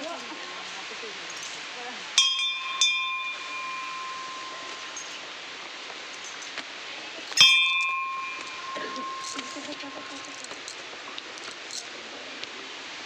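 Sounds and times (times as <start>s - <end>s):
metal bell ringing: 2.2s - 6.6s, 7.3s - 10.8s.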